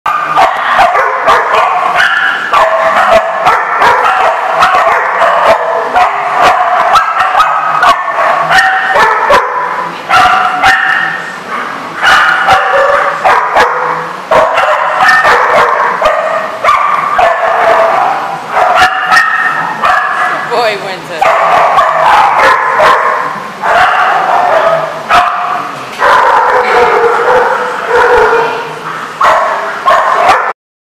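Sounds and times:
dog yipping and barking: 0.1 - 20.4, 21.2 - 28.6, 29.2 - 30.5.

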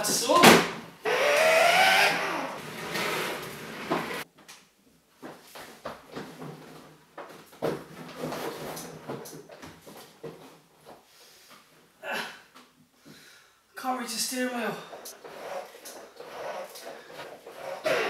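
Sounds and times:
person groaning: 12.0 - 12.5
plastic toy car creaking: 15.1 - 18.0.

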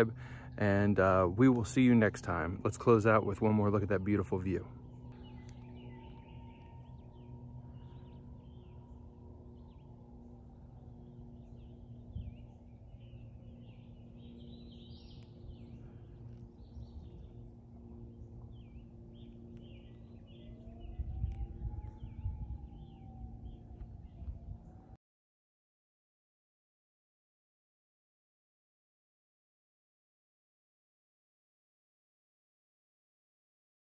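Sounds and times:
distant siren wailing: 0.0 - 25.0
low steady rumble: 0.0 - 25.0
small birds chirping: 0.1 - 24.7.

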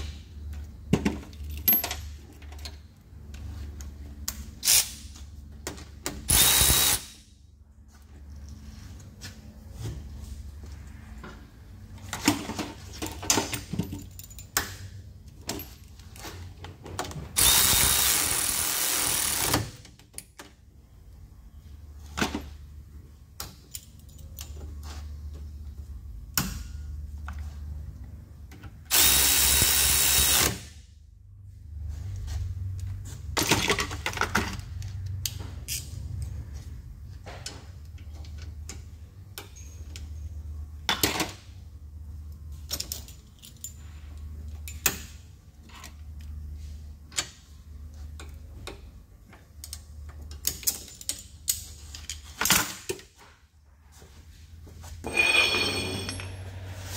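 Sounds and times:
power tool running: 6.3 - 7.2, 17.4 - 19.6, 28.9 - 30.6
metal tools clicking and clanking: 55.0 - 56.7.

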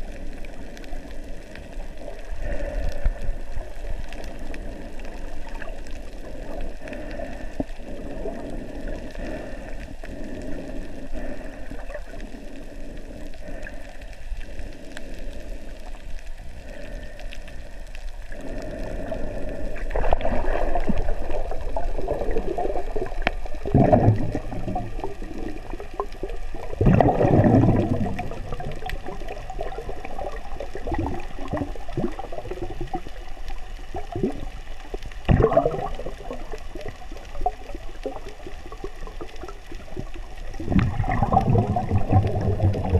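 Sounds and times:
muffled underwater water noise: 0.0 - 42.9
water rushing surges: 19.8 - 33.2, 39.4 - 42.9.

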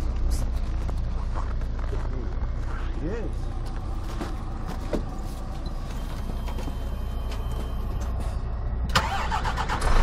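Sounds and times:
low rumble: 0.0 - 10.0
footsteps and knocks in truck cab: 3.6 - 8.1.

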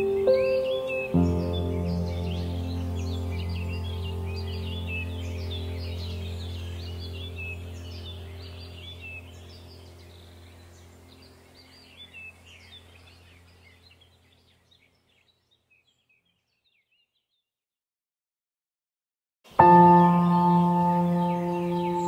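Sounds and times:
bird chirps: 0.0 - 17.5, 19.5 - 22.0
low steady drone: 1.1 - 13.6.

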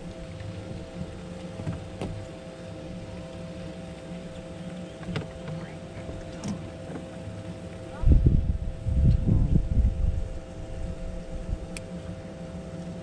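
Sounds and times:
boat motor humming: 0.0 - 13.0.

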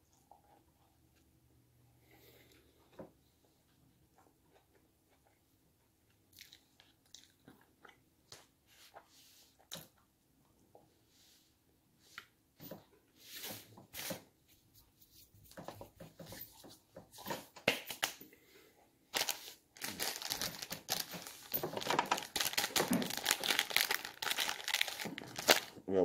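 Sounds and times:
food wrapper crinkling: 19.1 - 25.8.

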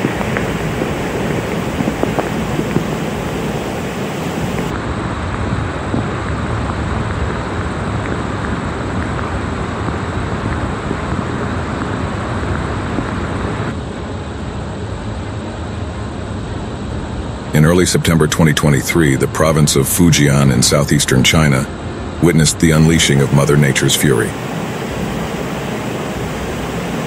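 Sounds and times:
floodwater rushing: 0.0 - 4.7, 22.2 - 27.0
wind noise on microphone: 0.0 - 13.8, 22.7 - 27.0.

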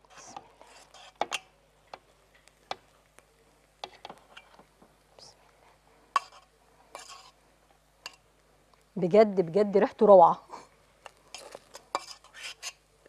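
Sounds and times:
spoon scraping metal pot: 6.2 - 7.4, 11.1 - 12.8.

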